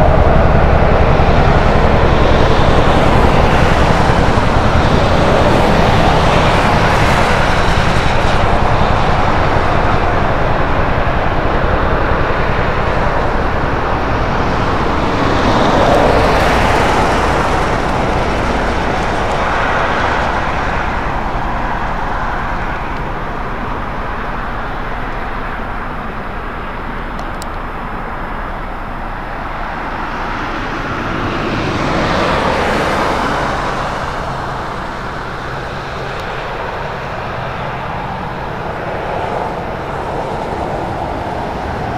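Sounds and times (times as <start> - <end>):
cars passing on highway: 0.0 - 41.9
low engine hum: 0.0 - 41.9.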